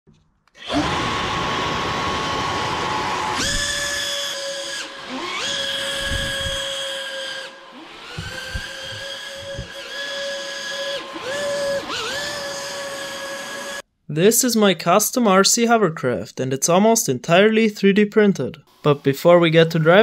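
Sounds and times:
rc hovercraft motors whining: 0:00.6 - 0:13.8.

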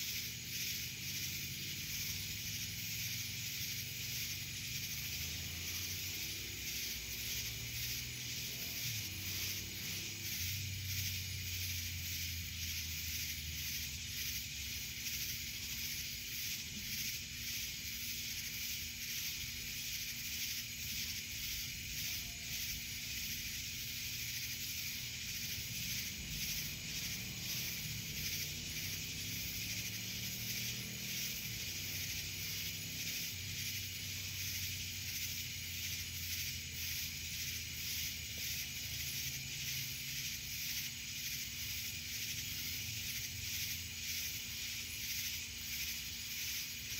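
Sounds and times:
cicadas buzzing: 0:00.0 - 0:46.9.

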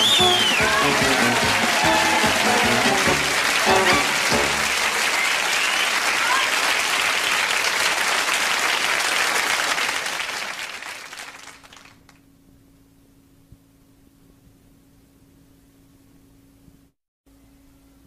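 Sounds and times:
closing theme tune: 0:00.0 - 0:05.2
studio audience applauding: 0:00.0 - 0:12.2.

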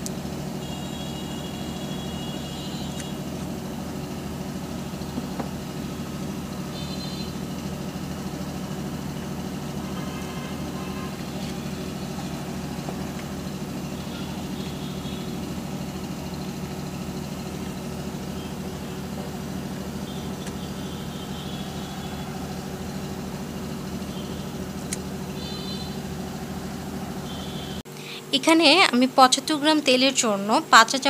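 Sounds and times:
low mechanical hum: 0:00.0 - 0:31.0.

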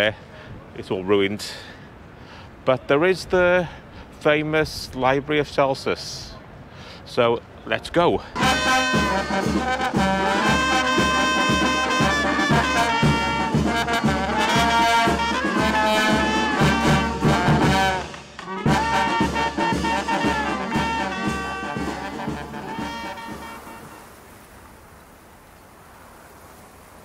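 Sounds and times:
bass drum beat: 0:08.4 - 0:23.7
brass band playing lively tune: 0:08.4 - 0:24.1.

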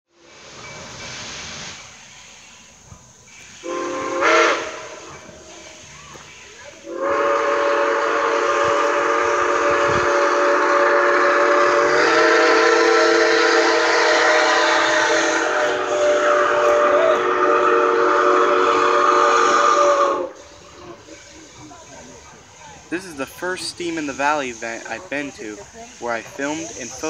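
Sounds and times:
steam locomotive whistle: 0:03.3 - 0:21.3.

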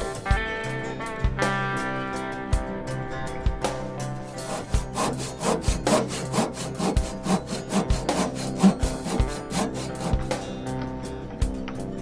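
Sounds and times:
faint background music: 0:00.0 - 0:12.0
handsaw cutting wood: 0:04.2 - 0:10.4.

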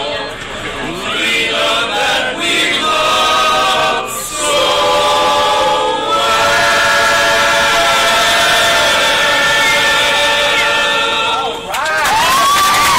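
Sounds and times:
men singing barbershop harmony: 0:00.9 - 0:11.7.

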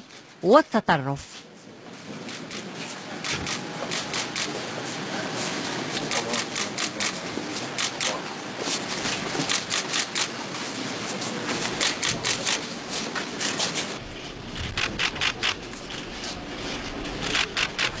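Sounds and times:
steady background hum: 0:00.0 - 0:18.0
camera shutters clicking: 0:03.2 - 0:04.5, 0:07.8 - 0:08.2, 0:14.7 - 0:15.6.

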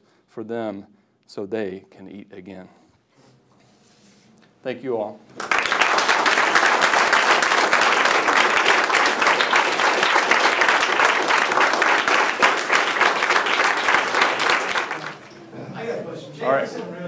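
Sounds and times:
audience applauding: 0:05.4 - 0:15.5.

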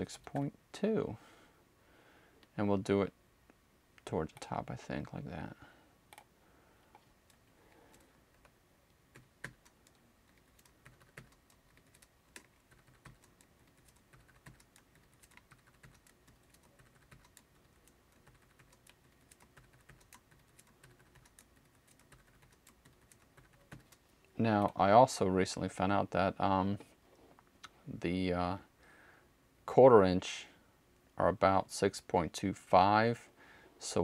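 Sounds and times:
computer keyboard clicks: 0:09.2 - 0:24.0.

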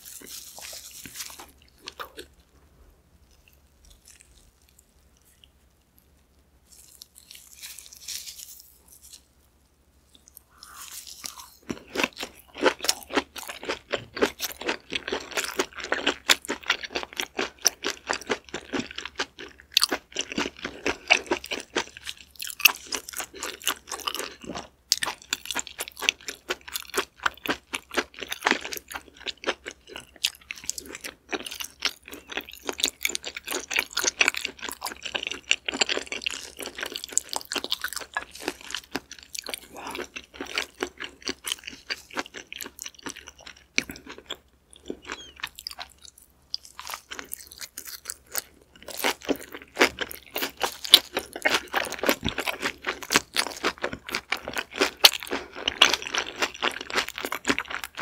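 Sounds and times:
crunching seaweed wrap: 0:00.0 - 0:02.3, 0:06.7 - 0:09.3, 0:10.2 - 0:24.4
wet chewing: 0:10.1 - 0:58.0.

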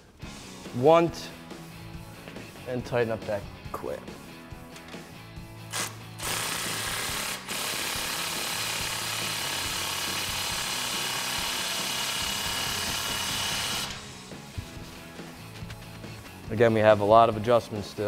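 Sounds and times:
cordless power tool running: 0:05.7 - 0:14.2.

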